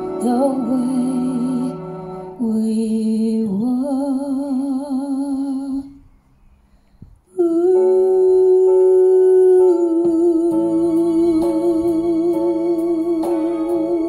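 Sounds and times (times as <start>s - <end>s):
backing track music: 0.0s - 2.7s, 7.8s - 14.0s.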